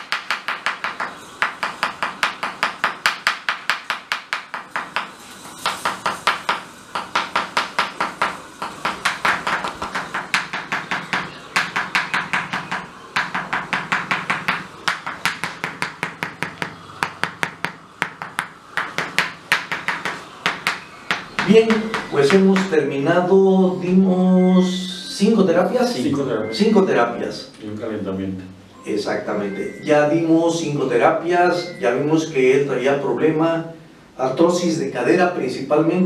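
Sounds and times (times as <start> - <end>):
mallet tapping wooden chisel: 0.0 - 22.8.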